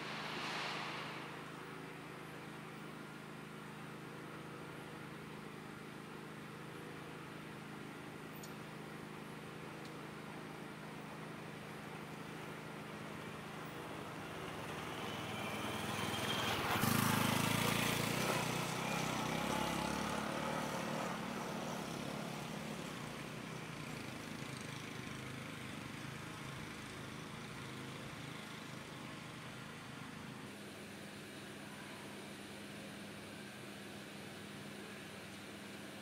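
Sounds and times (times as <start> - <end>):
motorcycle engine passing by: 14.1 - 26.9.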